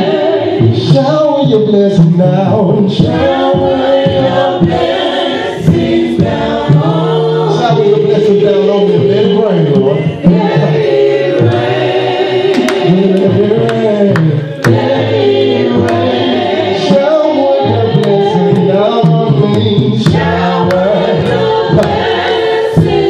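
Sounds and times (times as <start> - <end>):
man singing through microphone: 0.0 - 5.0, 5.7 - 11.7, 12.5 - 23.0
sharp percussive hits: 17.9 - 23.0.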